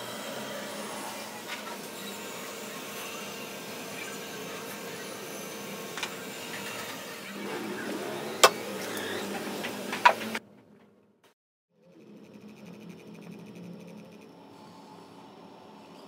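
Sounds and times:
wood lathe humming: 0.0 - 10.4.

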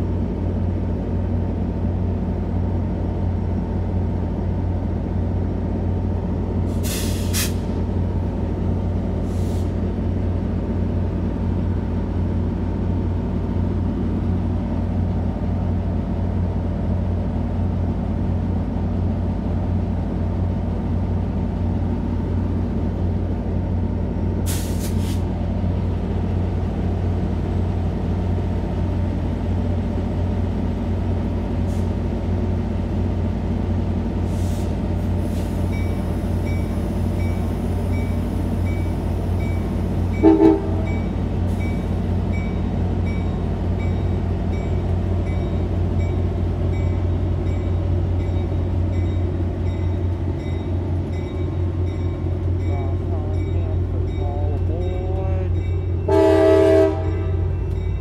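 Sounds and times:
diesel locomotive engine humming: 0.0 - 58.0
hiss of air: 6.7 - 7.8, 24.5 - 25.3, 34.2 - 35.7.

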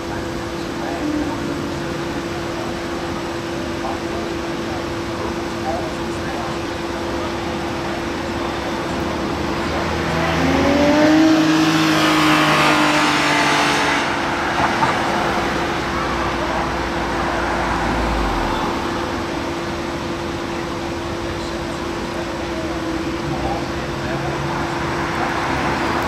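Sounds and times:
low road rumble: 0.0 - 26.0
car accelerating past: 16.7 - 19.4.

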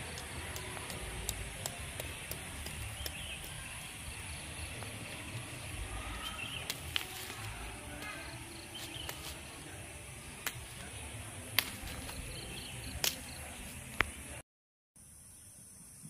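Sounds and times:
high insect drone: 15.0 - 16.0.

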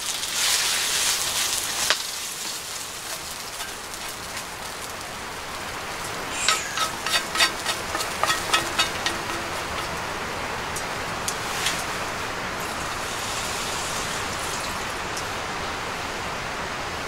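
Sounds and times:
wood stove crackling hiss: 0.0 - 17.0
utensil scraping metal pan: 6.3 - 12.2.

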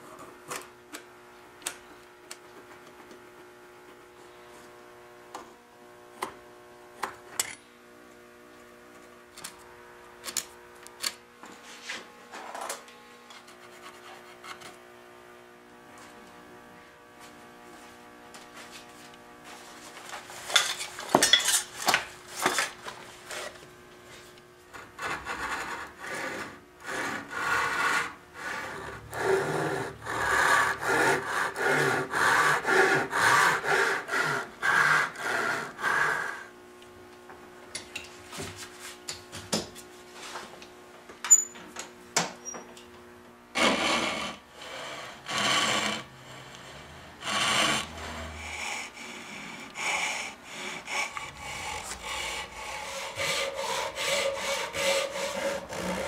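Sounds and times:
hand saw cutting wood: 20.2 - 23.6, 24.7 - 36.5, 43.5 - 56.0.

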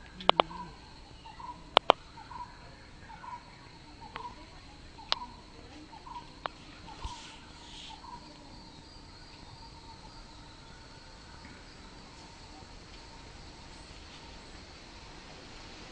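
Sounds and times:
sharp clicks: 0.0 - 0.7, 1.7 - 2.0, 5.0 - 5.3
bird chirping: 0.0 - 13.9
high insect drone: 0.0 - 15.9.

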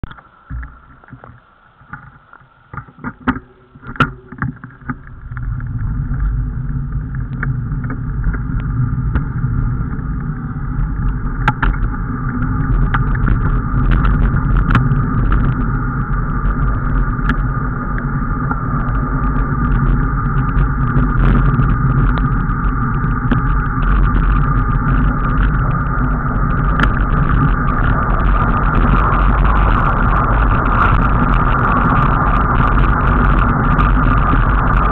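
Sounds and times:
vehicle road noise rumble: 0.0 - 34.9
wind on microphone: 0.0 - 34.9.

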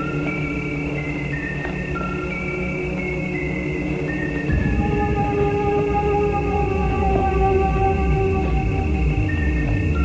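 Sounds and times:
eerie horror film score: 0.0 - 10.0
low repeating pulse: 4.5 - 10.0.

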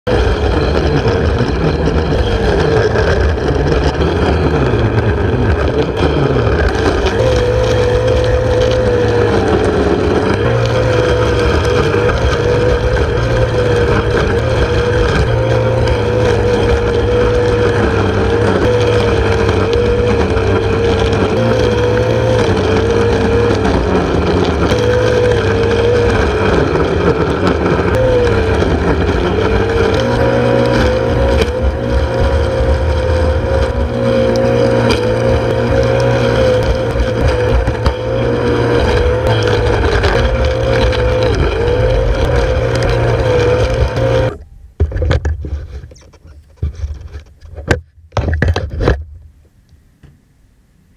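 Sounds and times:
electric lawnmower running: 0.1 - 44.4.

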